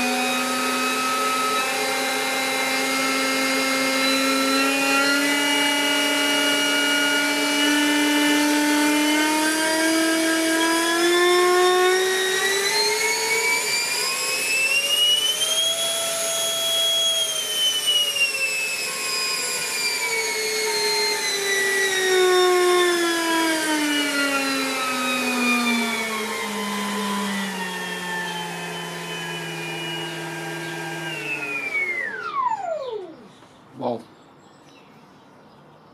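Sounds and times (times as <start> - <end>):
electric ducted fan whine: 9.9 - 34.4.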